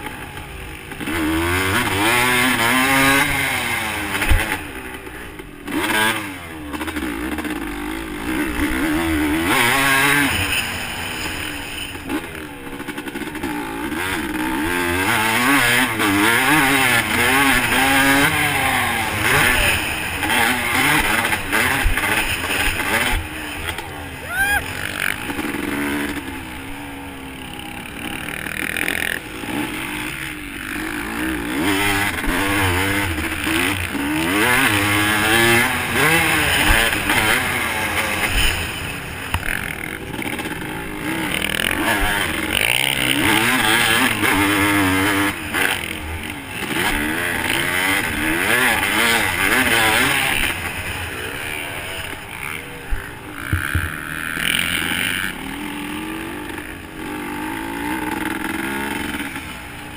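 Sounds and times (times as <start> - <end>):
dirt bike engine revving: 0.0 - 59.9
sharp knocks: 53.5 - 54.0.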